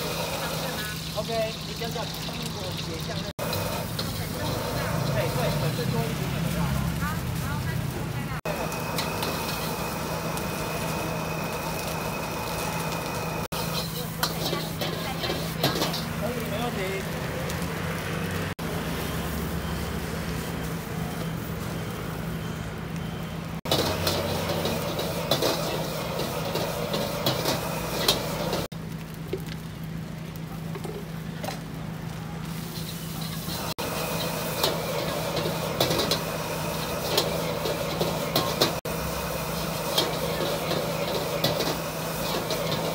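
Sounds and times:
food sizzling: 0.0 - 42.9
gas burner roaring: 0.0 - 42.9
metal ladle scraping a wok: 13.6 - 16.2, 23.7 - 28.7, 32.8 - 38.8, 39.5 - 42.9.

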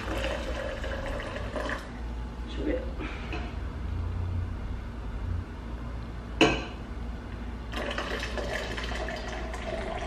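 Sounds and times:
water pouring into a bowl: 0.0 - 1.9, 7.7 - 10.0.

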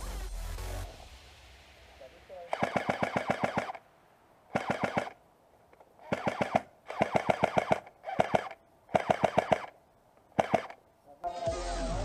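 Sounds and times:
airsoft rifle full-auto bursts: 2.5 - 3.8, 4.5 - 5.2, 6.0 - 10.8.

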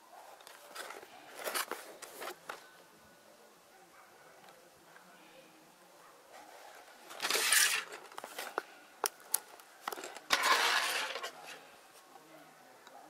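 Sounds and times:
cardboard and plastic rustling: 0.4 - 2.8, 6.4 - 12.1.

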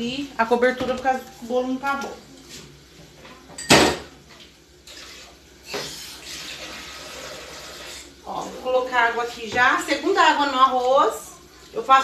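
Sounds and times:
tap water running into cup: 4.8 - 8.5.

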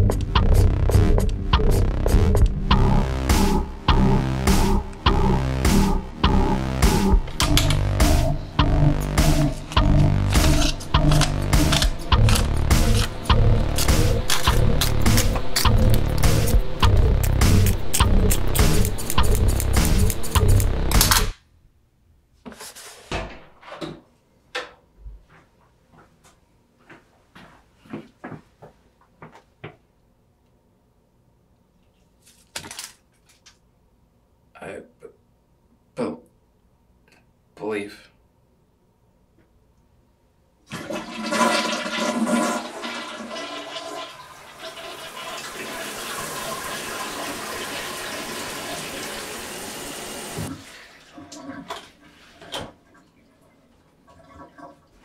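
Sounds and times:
paper crumpling: 32.1 - 33.5
toilet flushing: 40.7 - 55.0.

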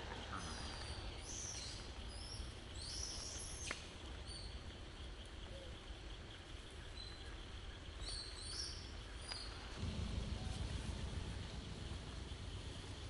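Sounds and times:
birds chirping: 0.0 - 13.0
low rumble: 9.6 - 13.0.

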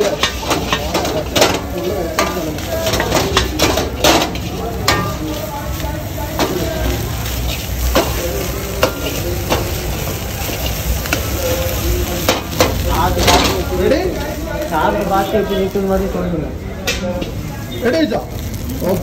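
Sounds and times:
steel ladle scraping a wok: 0.0 - 14.3
rice sizzling in hot pan: 0.0 - 19.0.

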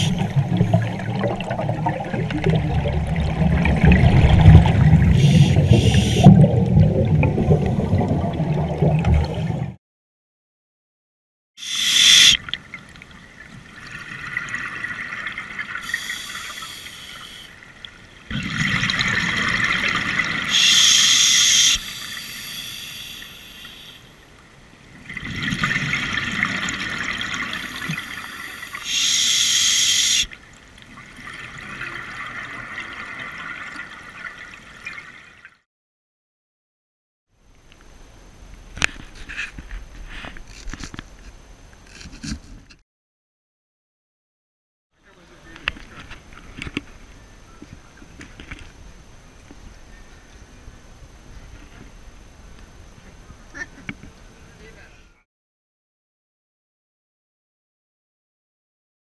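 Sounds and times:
underwater breath hiss: 5.2 - 6.3, 11.6 - 12.4, 15.8 - 17.5, 20.5 - 24.0, 27.5 - 30.3.

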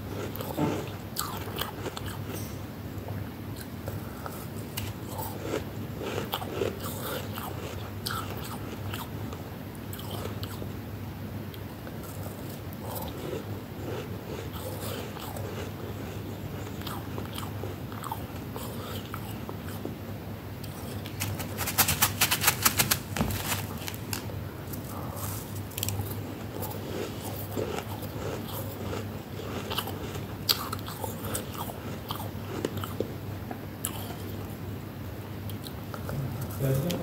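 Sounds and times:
low steady hum: 0.0 - 37.0
frost being crunched and chewed: 20.6 - 33.0.

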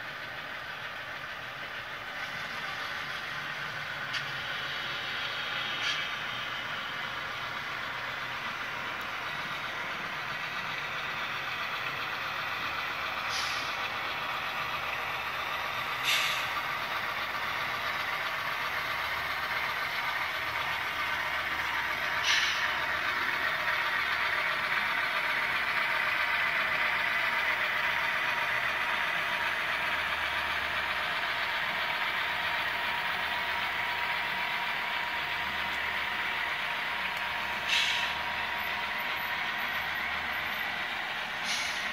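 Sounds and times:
model train running with whine: 0.0 - 41.9
short air hisses: 13.3 - 13.8, 16.0 - 16.5, 22.2 - 22.6, 37.6 - 38.2, 41.4 - 41.9.

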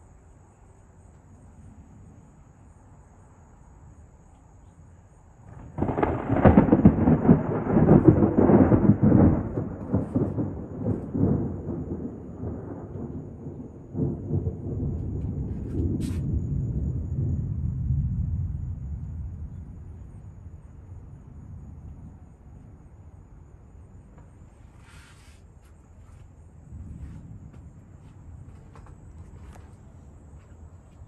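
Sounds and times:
thunderclap and rolling rumble: 5.4 - 24.8, 25.8 - 31.0.

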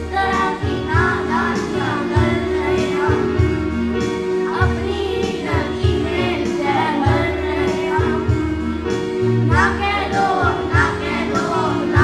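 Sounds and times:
instrumental backing music: 0.0 - 12.0
children singing in chorus: 9.6 - 12.0.

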